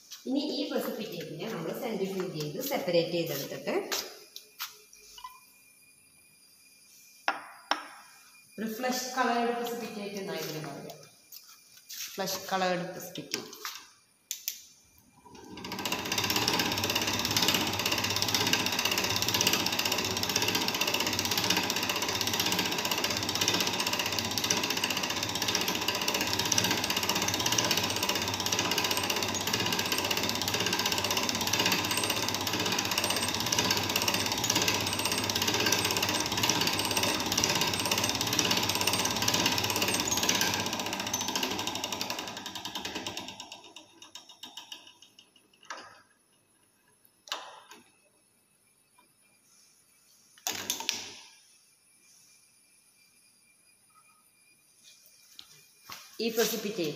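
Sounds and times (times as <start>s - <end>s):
centrifuge gears clicking: 15.6s - 45.0s.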